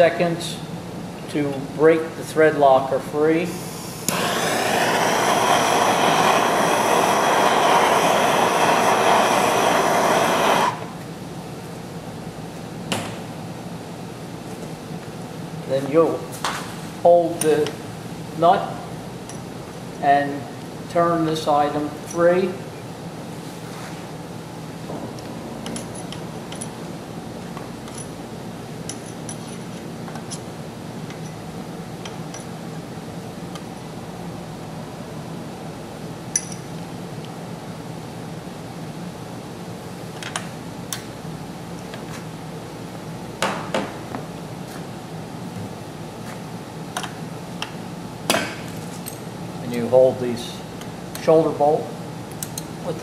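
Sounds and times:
steady low hum: 0:00.0 - 0:53.0
gas torch hissing: 0:03.5 - 0:11.0.

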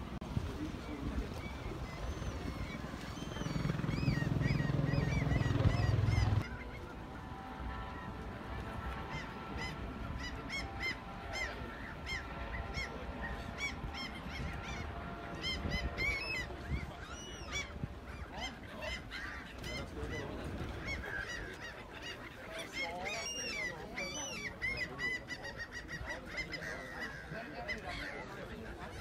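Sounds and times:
birds honking calls: 0:01.3 - 0:29.0.

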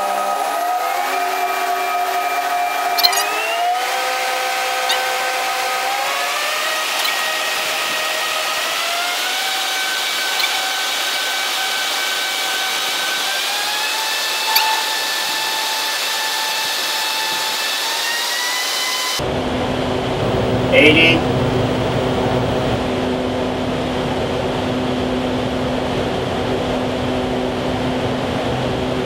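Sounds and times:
fan whine rising in pitch: 0:00.0 - 0:29.0
fans blowing rushing air: 0:19.2 - 0:29.0.

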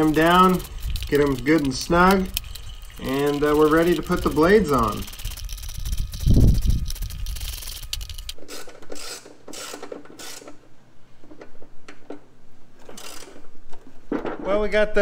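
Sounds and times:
socket ratchet clicking: 0:00.0 - 0:10.6.

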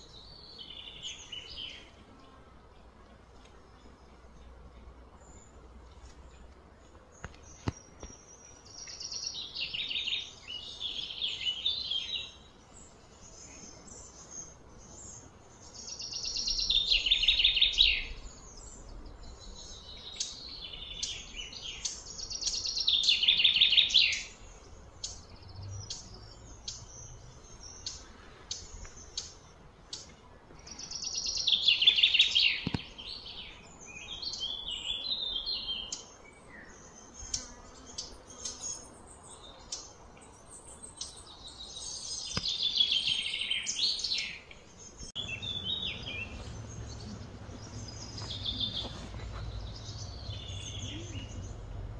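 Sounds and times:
bird singing falling trills: 0:13.4 - 0:51.8.

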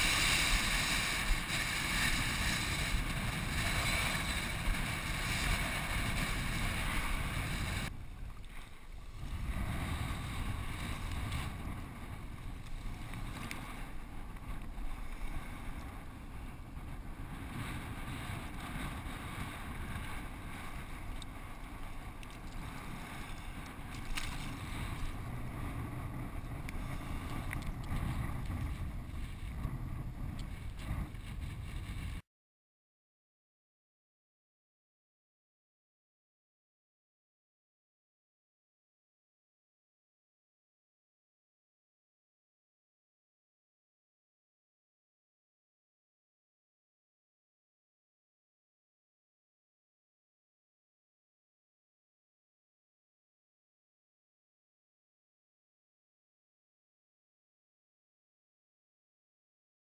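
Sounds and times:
wind buffeting microphone: 0:00.0 - 0:32.2.

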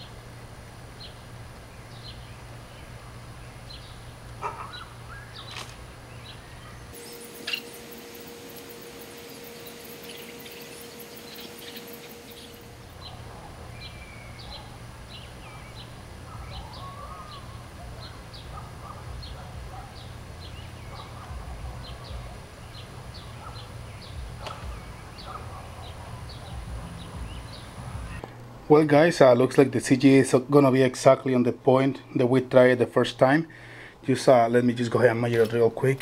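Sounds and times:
steady low rumble: 0:00.0 - 0:28.7
small birds chirping: 0:01.0 - 0:28.4.

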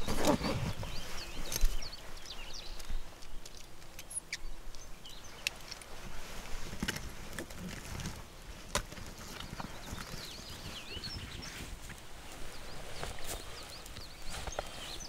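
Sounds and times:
bag rustling: 0:00.0 - 0:01.9
faint birds chirping: 0:00.0 - 0:15.0.

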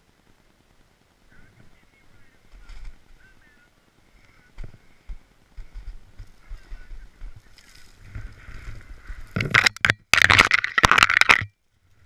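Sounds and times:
icy branches clattering: 0:04.6 - 0:11.5.

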